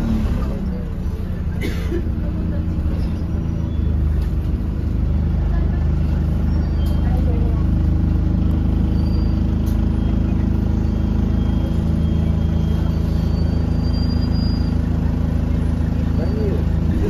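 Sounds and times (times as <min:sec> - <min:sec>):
bus diesel engine drone: 0:00.0 - 0:17.0
faint high whistle: 0:10.9 - 0:14.8.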